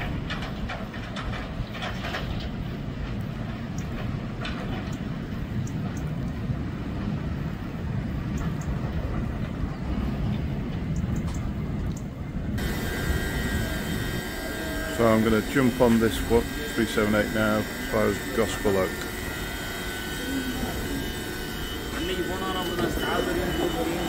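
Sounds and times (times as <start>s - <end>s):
electric train rumbling on rails: 0.0s - 24.0s
faint clicks: 5.6s - 6.4s, 10.9s - 12.1s
hum with high whining tones: 12.5s - 24.0s.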